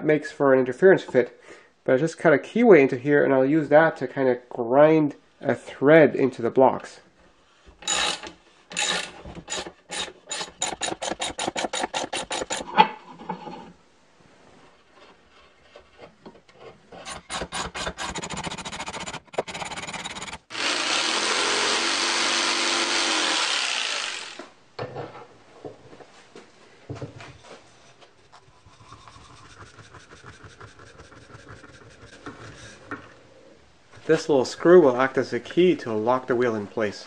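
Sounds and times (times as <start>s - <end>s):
cordless drill spinning: 7.8s - 12.6s, 19.8s - 24.5s
metal rod scraping wood: 7.8s - 13.8s, 14.7s - 20.5s, 27.4s - 33.1s.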